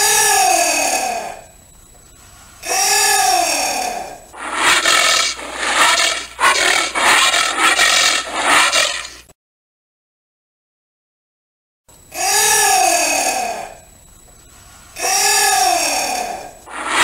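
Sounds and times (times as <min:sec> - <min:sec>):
harsh rasping bursts: 0:04.4 - 0:09.2, 0:16.7 - 0:17.0.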